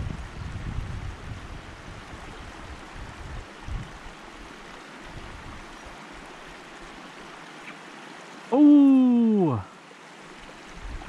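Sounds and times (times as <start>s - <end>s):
wind buffeting microphone: 0.0s - 4.4s, 10.7s - 11.0s
creek water rushing: 0.0s - 11.0s.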